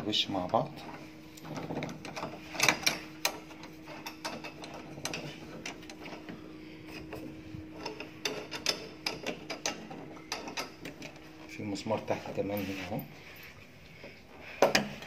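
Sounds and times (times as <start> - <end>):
small metal clicks and rattles: 1.3 - 6.3, 6.9 - 11.2.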